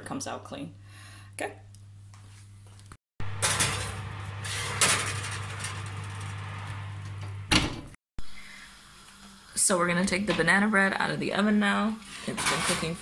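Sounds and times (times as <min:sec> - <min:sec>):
steady low hum: 0:03.2 - 0:08.0
metal pan scraping on wire rack: 0:03.3 - 0:07.1
oven door shutting: 0:03.3 - 0:07.9.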